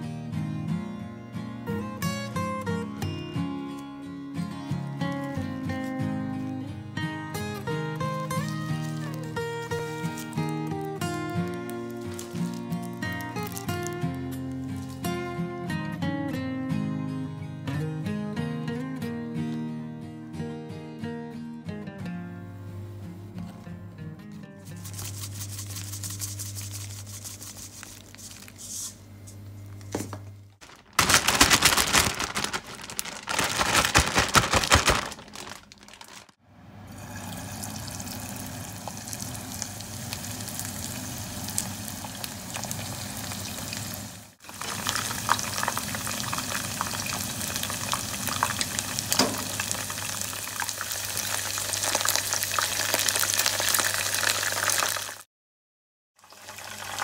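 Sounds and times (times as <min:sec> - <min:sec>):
powder shaken in plastic bag: 0:08.2 - 0:15.2, 0:24.6 - 0:29.0, 0:30.6 - 0:36.4
plastic bag shaken hard: 0:08.4 - 0:14.0, 0:30.6 - 0:36.4
chicken deep-frying in oil: 0:08.4 - 0:15.2, 0:36.5 - 0:55.3, 0:56.2 - 0:57.0.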